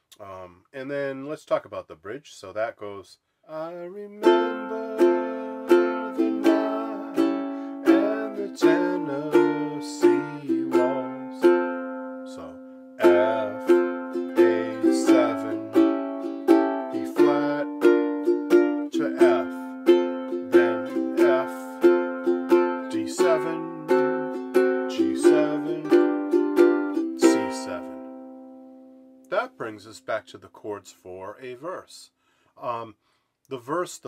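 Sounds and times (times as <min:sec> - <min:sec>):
ukulele strumming: 0:04.1 - 0:29.4.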